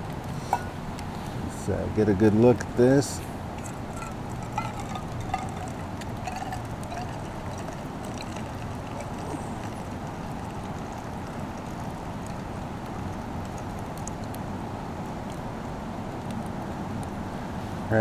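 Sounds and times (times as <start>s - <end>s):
coffee pouring into metal cup: 3.5s - 14.4s
light clink: 3.6s - 7.7s.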